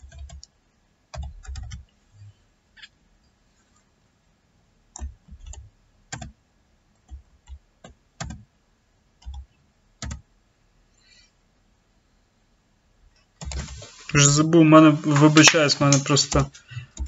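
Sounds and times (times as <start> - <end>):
slow keyboard typing: 0.0 - 3.0, 4.9 - 6.4, 7.0 - 8.5, 9.2 - 10.3, 13.1 - 14.3, 15.0 - 17.0.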